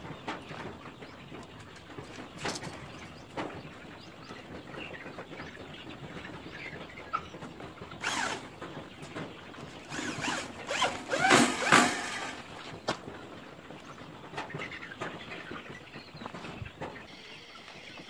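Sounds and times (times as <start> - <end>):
electric drill driving screws: 8.0 - 8.5, 9.8 - 12.8.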